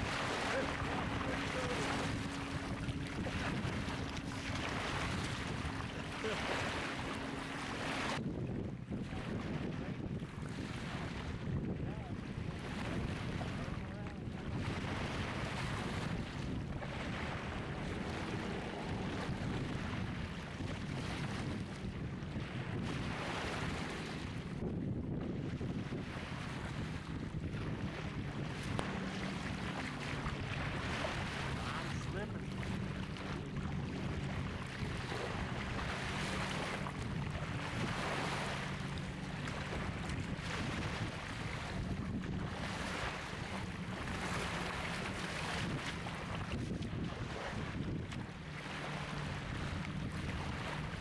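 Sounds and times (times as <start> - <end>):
water sloshing around waders: 0.0 - 51.0
wind buffeting microphone: 0.0 - 51.0.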